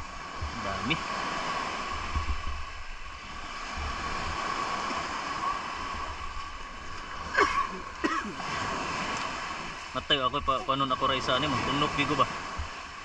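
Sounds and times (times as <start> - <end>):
steady outdoor hiss: 0.0 - 13.0
wind buffeting microphone: 0.0 - 13.0.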